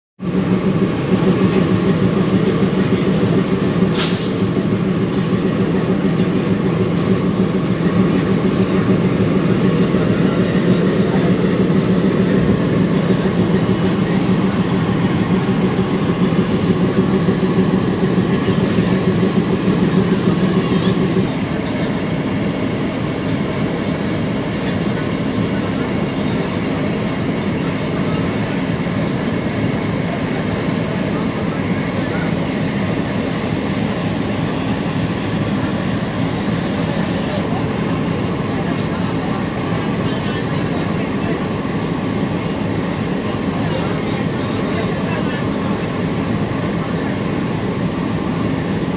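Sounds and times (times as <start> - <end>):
locomotive engine idling: 0.2 - 48.9.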